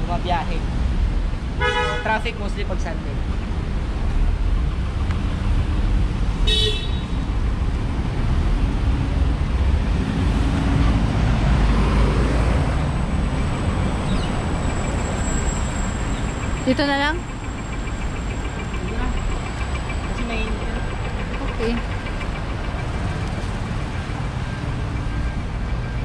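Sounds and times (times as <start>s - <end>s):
car road noise rumble: 0.0s - 26.0s.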